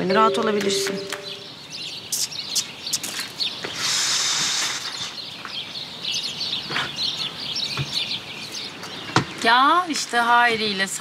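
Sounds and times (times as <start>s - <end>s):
small birds chirping: 0.0s - 11.0s
loud harsh hiss: 3.8s - 5.1s.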